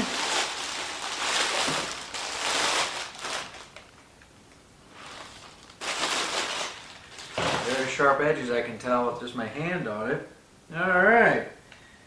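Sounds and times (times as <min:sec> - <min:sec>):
plastic bag crinkling: 0:00.0 - 0:04.0, 0:04.9 - 0:08.1.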